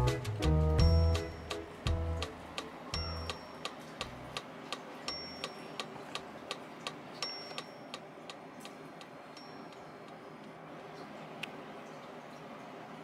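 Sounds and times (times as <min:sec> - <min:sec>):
ticking clock-like beat: 0:00.0 - 0:04.5, 0:05.1 - 0:10.6
high chime-like tone: 0:05.1 - 0:05.8.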